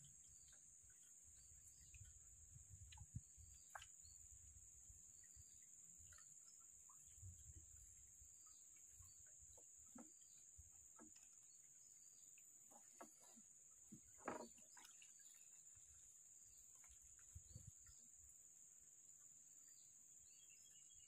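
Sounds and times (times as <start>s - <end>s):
faint calls or knocks: 12.7s - 14.8s.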